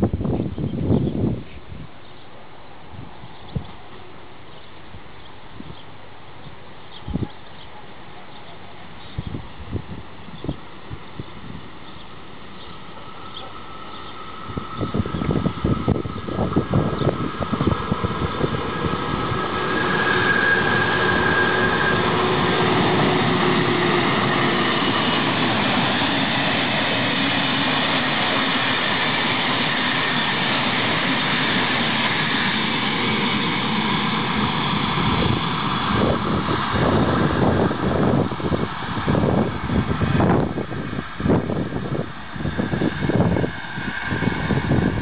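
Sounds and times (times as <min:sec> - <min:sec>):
wheel and rail noise: 0:00.0 - 0:45.0
high whine: 0:11.2 - 0:45.0.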